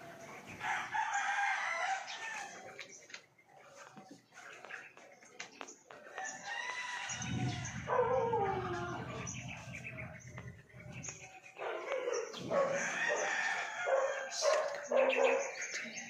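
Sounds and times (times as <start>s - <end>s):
birds chirping: 0.0s - 16.0s
rooster crowing: 0.6s - 2.6s, 6.2s - 9.4s, 12.5s - 14.4s.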